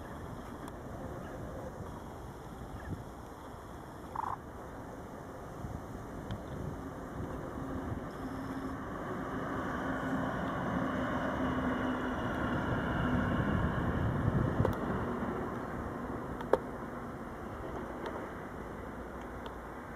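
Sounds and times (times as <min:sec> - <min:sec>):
diesel locomotive passing: 0:04.5 - 0:19.9.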